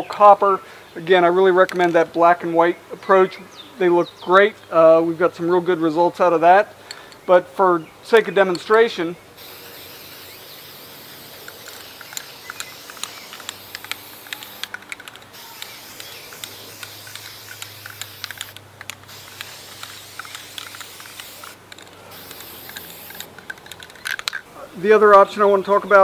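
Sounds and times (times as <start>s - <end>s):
spray paint can hissing: 9.4s - 24.4s
light clicks: 11.4s - 24.4s.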